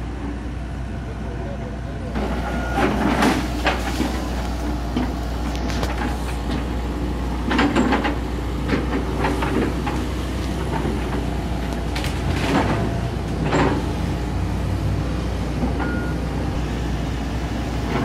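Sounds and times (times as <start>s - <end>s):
excavator diesel engine running: 0.0s - 18.0s
branches crackling and snapping: 3.4s - 6.7s, 9.3s - 13.4s.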